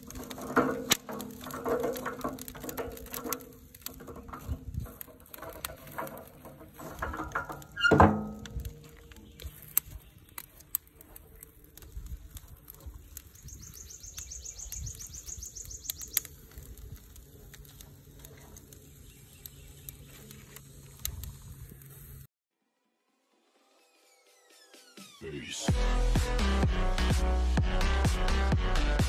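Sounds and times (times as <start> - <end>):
bird trilling: 13.4 - 16.3.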